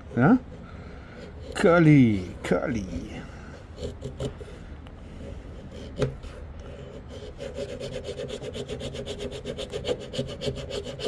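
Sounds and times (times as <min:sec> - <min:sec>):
knife blade scraping wood: 0:00.0 - 0:02.4, 0:03.5 - 0:11.0.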